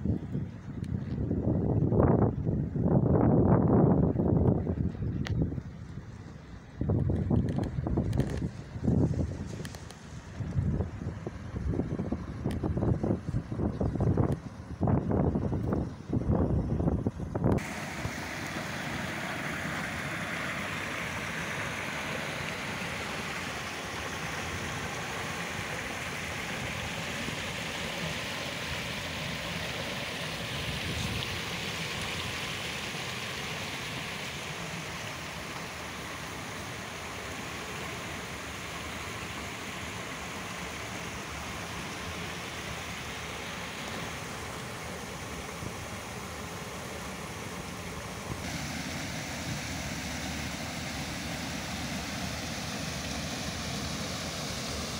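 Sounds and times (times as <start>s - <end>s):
stream rushing over boulders: 17.5s - 54.9s.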